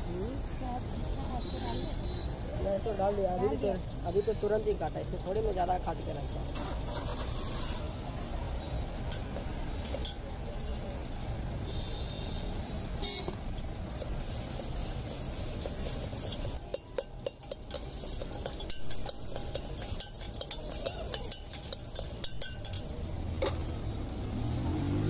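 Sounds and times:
puffed rice being tossed: 0:14.0 - 0:23.0
steel spoon clinking in metal tin: 0:14.8 - 0:23.6.

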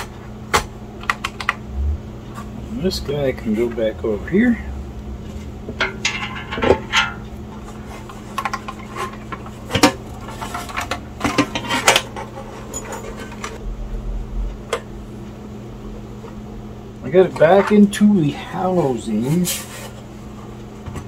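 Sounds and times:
metallic clanks and knocks: 0:05.7 - 0:07.3.

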